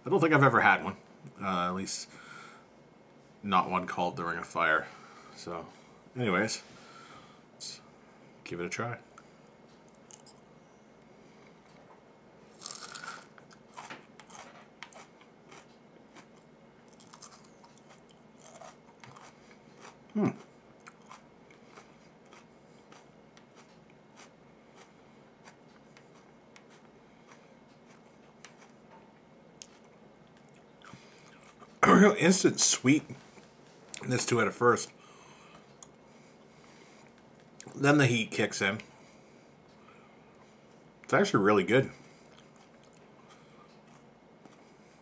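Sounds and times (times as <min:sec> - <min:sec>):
chili pepper crunch: 0:12.6 - 0:28.8
wet chewing: 0:12.6 - 0:28.8, 0:42.3 - 0:44.7
short vocal sound: 0:20.1 - 0:20.4.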